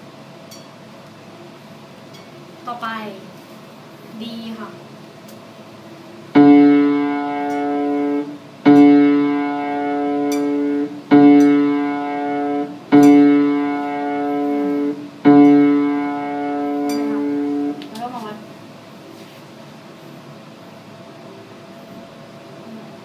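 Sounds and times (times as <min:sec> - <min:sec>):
low piano note: 0:06.4 - 0:17.8.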